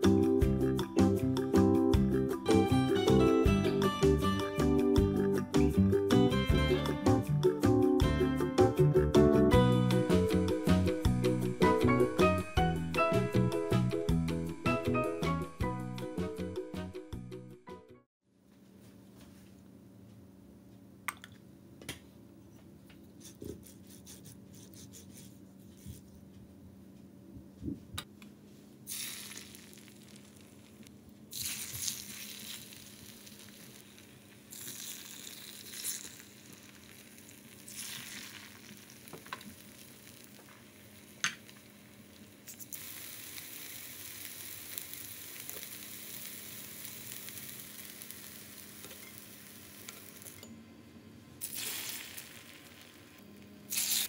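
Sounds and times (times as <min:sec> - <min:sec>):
meat sizzling in oil: 0:28.9 - 0:50.4, 0:51.4 - 0:54.0.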